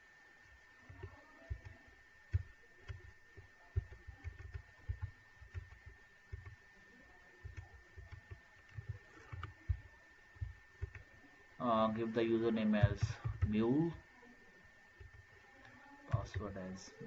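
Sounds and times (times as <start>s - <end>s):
faint high-pitched whine: 0.0s - 17.0s
computer keyboard keystrokes: 0.9s - 6.6s, 7.4s - 11.1s, 12.8s - 13.6s.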